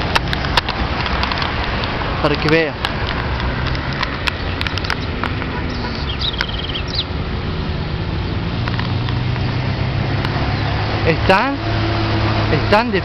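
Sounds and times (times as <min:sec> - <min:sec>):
low engine hum: 0:00.0 - 0:13.0
traffic: 0:00.0 - 0:13.0
wind: 0:00.0 - 0:13.0
rapid bird trill: 0:04.4 - 0:07.2.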